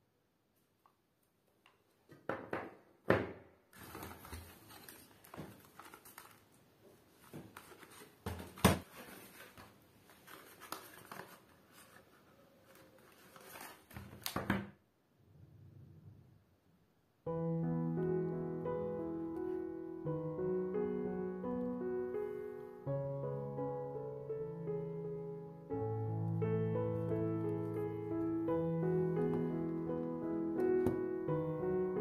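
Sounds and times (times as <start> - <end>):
items knocking on table: 2.1 - 3.5
fabric shopping bag rustling: 3.8 - 14.2.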